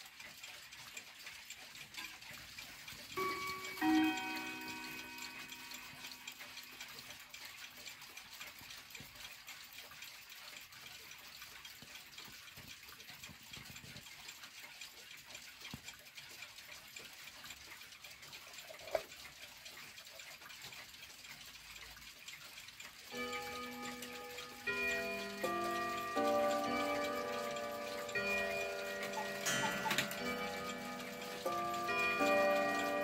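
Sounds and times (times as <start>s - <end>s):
clock ticking: 0.0s - 33.0s
mantel clock chiming: 1.6s - 7.7s, 22.8s - 33.0s.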